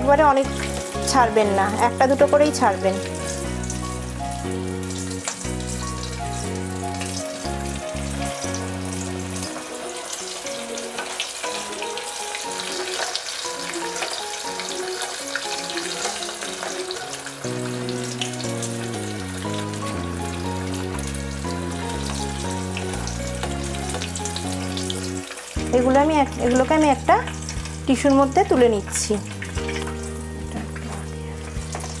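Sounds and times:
background music with bass line: 0.0 - 9.5, 17.7 - 32.0
food deep-frying in oil: 0.0 - 32.0.

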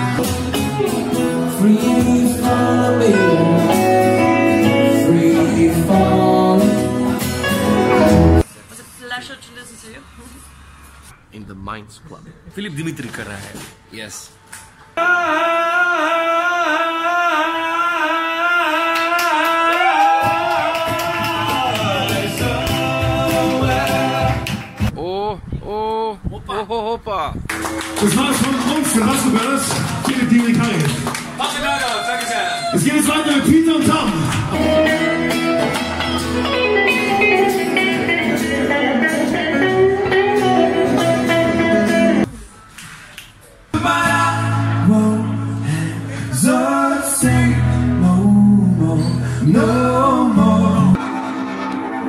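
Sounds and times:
acoustic guitar: 0.0 - 9.4, 18.4 - 25.0, 32.7 - 52.0
man singing long high note: 1.3 - 7.2, 15.0 - 24.4.

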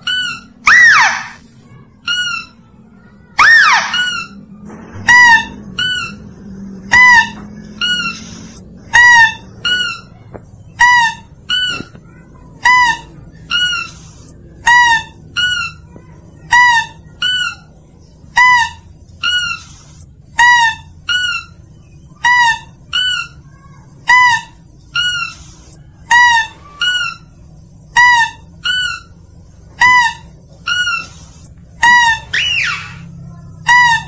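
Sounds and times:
high nasal lure calls: 0.0 - 1.4, 3.4 - 4.4, 6.9 - 10.1, 24.1 - 29.2, 29.8 - 34.0.

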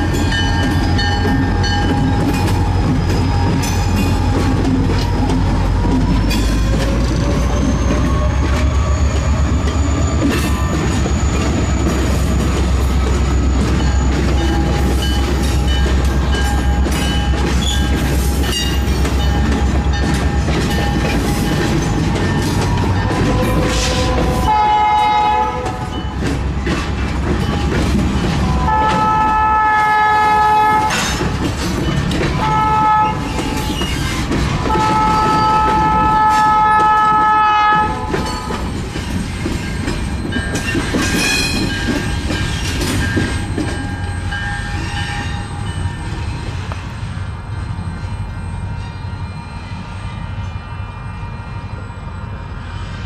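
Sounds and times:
wheels clicking over rail joints: 0.0 - 45.4
diesel locomotives rumbling past: 0.0 - 53.0
locomotive air horn: 23.1 - 26.0, 28.4 - 31.2, 32.4 - 33.4, 34.6 - 38.5.

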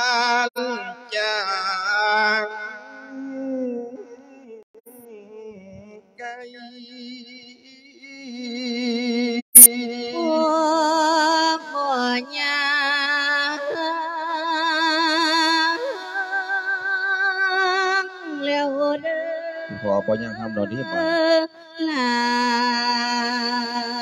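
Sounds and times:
person chanting slow melody: 19.7 - 21.2.

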